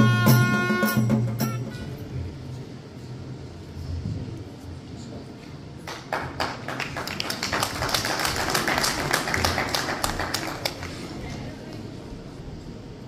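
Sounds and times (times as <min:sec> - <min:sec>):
small group clapping: 0:05.8 - 0:11.8.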